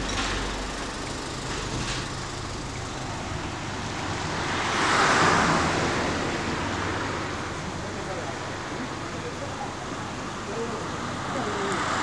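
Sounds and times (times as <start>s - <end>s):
vehicle tyre noise passing: 0.0s - 9.1s
street ambience: 0.0s - 12.0s.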